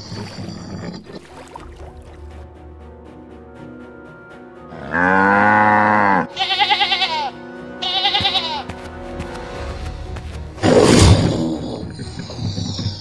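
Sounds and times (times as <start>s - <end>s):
background music: 0.0s - 13.0s
cow mooing: 4.7s - 6.8s
sheep bleating: 4.8s - 8.7s.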